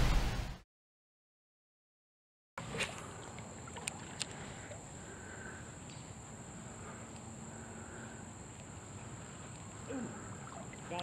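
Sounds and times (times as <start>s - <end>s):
shallow water lapping: 2.6s - 5.8s, 6.6s - 11.0s.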